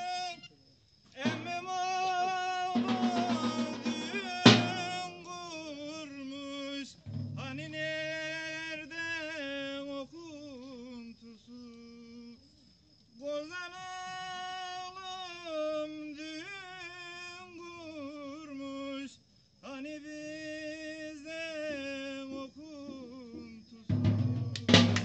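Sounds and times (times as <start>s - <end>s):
man singing folk song: 0.0s - 0.4s, 1.2s - 12.4s, 13.2s - 24.5s
drum stroke: 2.8s - 5.2s, 7.0s - 7.8s, 23.9s - 25.0s.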